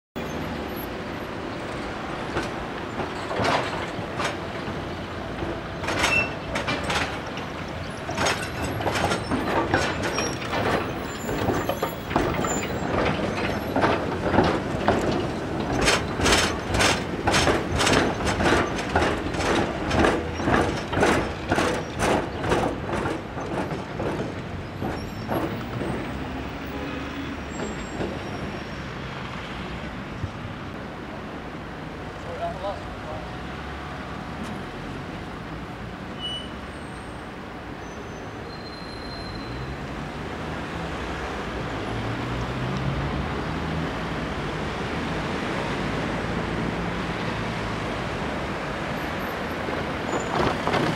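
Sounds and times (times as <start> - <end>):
tram wheels clattering over rail joints: 0.2 - 50.9.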